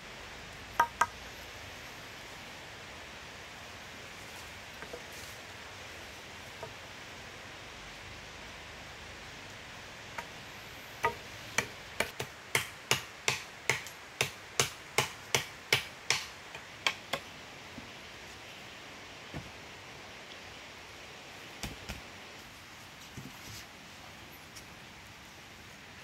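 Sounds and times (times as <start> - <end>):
steady hiss: 0.0 - 26.0
sharp chopping on wood: 11.0 - 16.3.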